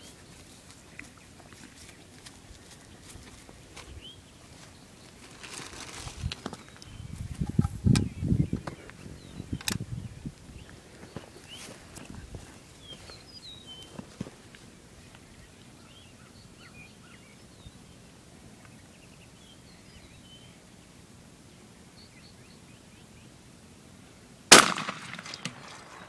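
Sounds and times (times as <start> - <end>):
shotgun shot with echo: 24.5 - 26.0.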